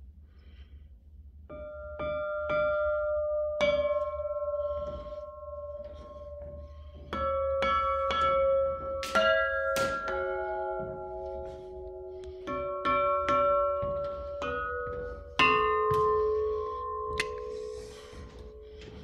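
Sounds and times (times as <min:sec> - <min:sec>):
bells struck with hammer: 0:01.5 - 0:19.0.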